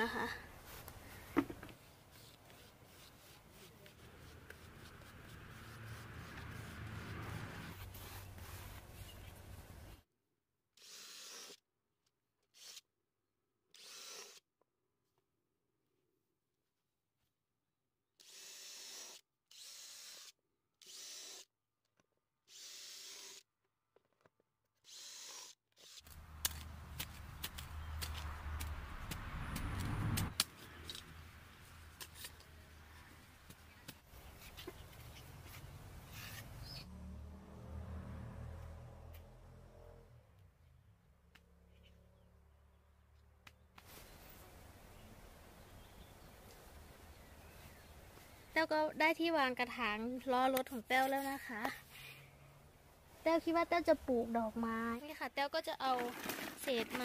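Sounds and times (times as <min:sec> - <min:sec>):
paintbrush scratchy brushing: 0:00.6 - 0:09.7
cordless drill boring into rubber: 0:10.8 - 0:11.6, 0:12.5 - 0:12.9, 0:13.7 - 0:14.5, 0:18.2 - 0:21.5, 0:22.5 - 0:23.5, 0:24.8 - 0:26.2.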